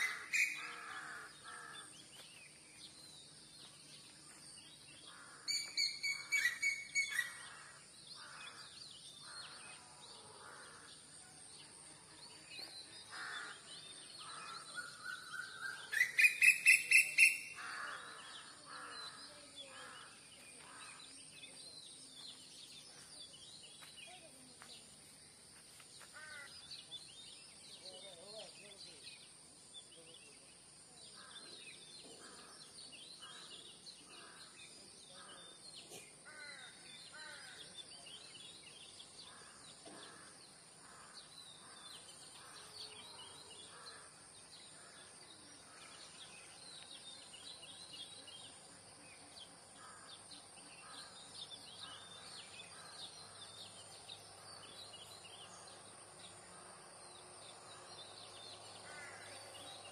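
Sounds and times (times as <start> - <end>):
small birds chirping: 0.0 - 59.9
crow cawing: 17.6 - 19.2, 58.8 - 59.4.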